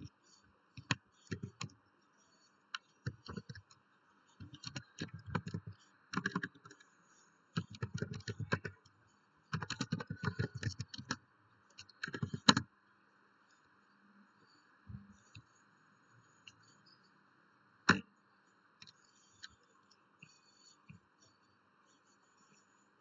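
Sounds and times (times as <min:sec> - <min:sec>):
keyboard typing clicks: 0:04.4 - 0:06.8, 0:07.6 - 0:08.8, 0:09.5 - 0:11.2, 0:11.8 - 0:12.6.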